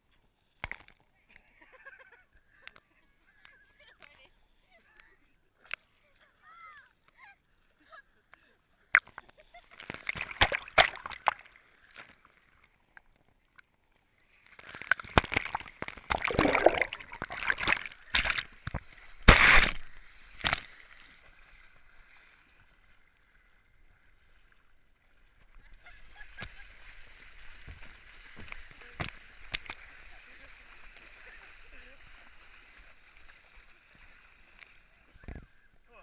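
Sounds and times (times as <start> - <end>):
water splashing at microphone: 9.0 - 13.2, 14.6 - 22.8, 25.8 - 35.5.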